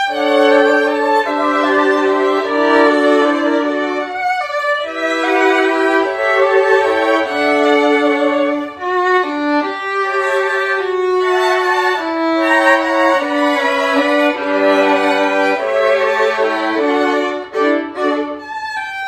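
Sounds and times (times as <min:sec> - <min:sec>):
violins playing in harmony: 0:00.0 - 0:19.0.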